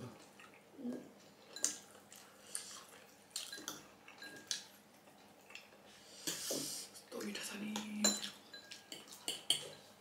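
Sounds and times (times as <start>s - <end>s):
wet chewing and mouth smacks: 0.2s - 5.9s.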